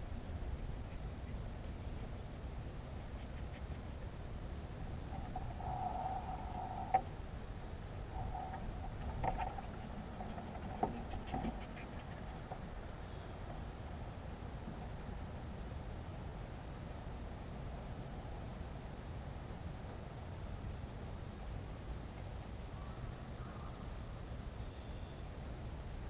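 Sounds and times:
steady low hiss: 0.0s - 26.0s
thin whining tone: 3.9s - 7.3s.

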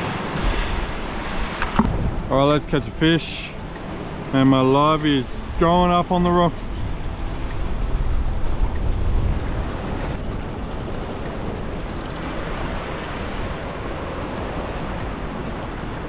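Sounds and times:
waves washing against rocks: 0.0s - 3.2s
wind buffeting microphone: 0.0s - 5.8s, 6.6s - 16.0s.

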